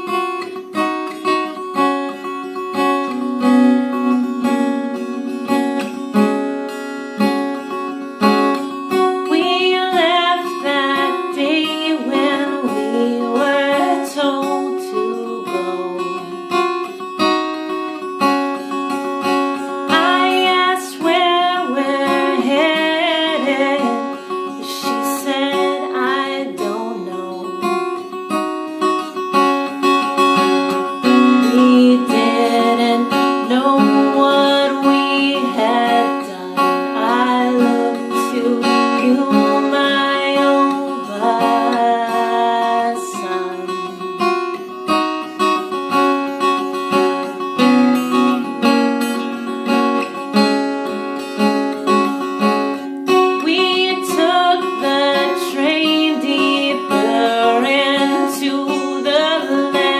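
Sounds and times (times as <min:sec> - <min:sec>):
woman singing: 0:00.0 - 0:06.6, 0:07.2 - 0:59.9
acoustic guitar chords: 0:00.0 - 0:59.9.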